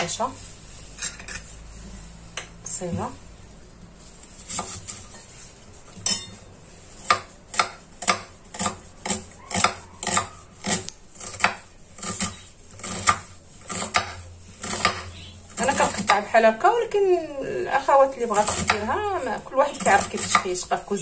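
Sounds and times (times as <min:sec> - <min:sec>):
knife chopping on wooden board: 0:04.5 - 0:05.0, 0:07.0 - 0:16.2, 0:18.4 - 0:19.0, 0:19.8 - 0:20.5.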